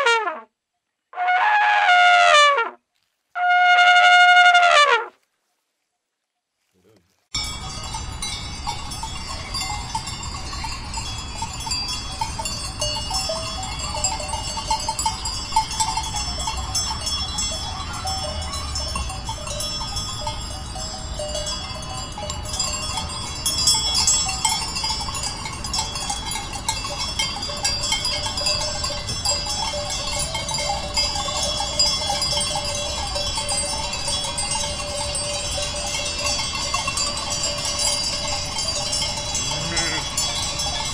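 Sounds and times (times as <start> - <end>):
sheep flock calling: 39.4 - 40.9.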